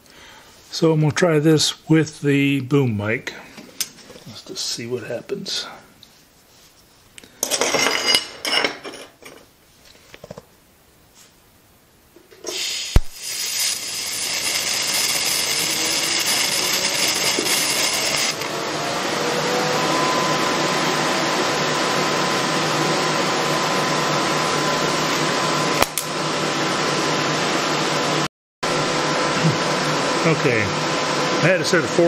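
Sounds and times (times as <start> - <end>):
welder arc hum and hiss: 10.9 - 32.0
welder sharp click: 12.9 - 13.2.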